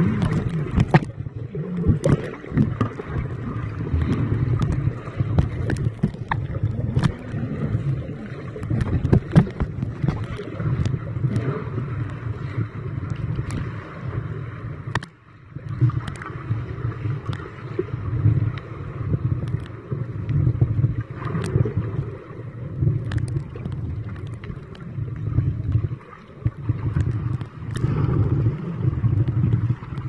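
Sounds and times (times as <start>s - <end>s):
muffled underwater rumble: 0.0s - 30.0s.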